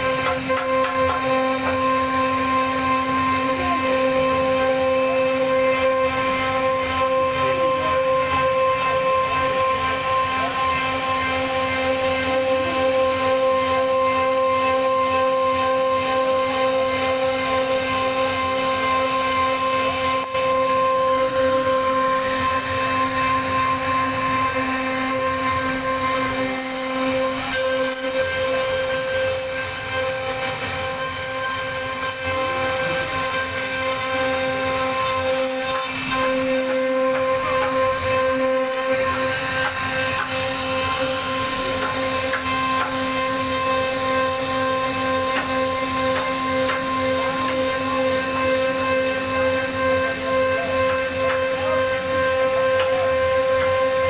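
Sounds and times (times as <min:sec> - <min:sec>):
cutter rasping in wood: 0:00.0 - 0:54.0
router spindle whining: 0:00.0 - 0:54.0.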